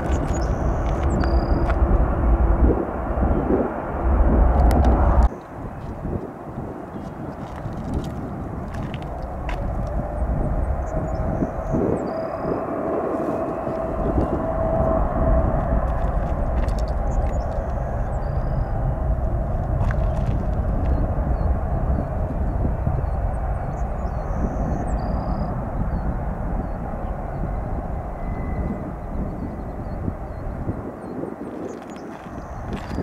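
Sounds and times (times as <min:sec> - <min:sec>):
jet engines rushing: 0:00.0 - 0:33.0
thin engine whine: 0:08.2 - 0:30.9.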